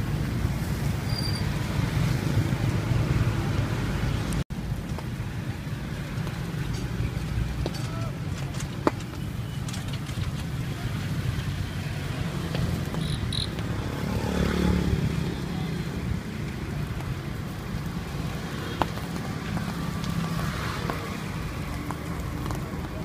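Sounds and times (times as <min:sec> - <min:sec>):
low rumble of traffic: 0:00.0 - 0:23.0
vehicle passing close by: 0:10.7 - 0:23.0.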